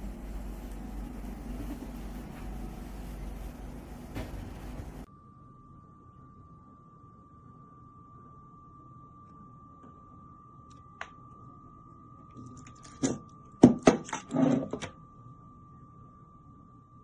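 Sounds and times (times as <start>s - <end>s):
plastic rustling: 0.0s - 5.1s.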